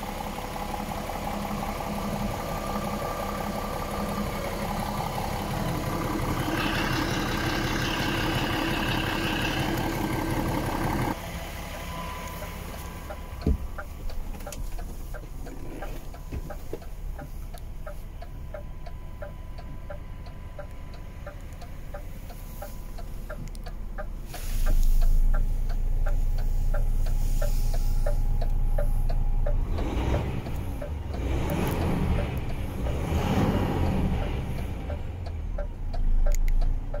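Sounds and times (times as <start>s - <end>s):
diesel engine idling: 0.0s - 37.0s
steady ticking: 16.1s - 37.0s.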